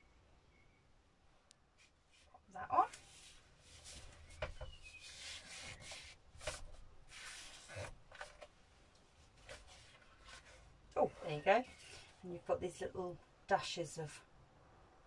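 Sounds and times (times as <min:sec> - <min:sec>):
yarn scraping against paper: 0:01.8 - 0:08.5, 0:09.2 - 0:12.4.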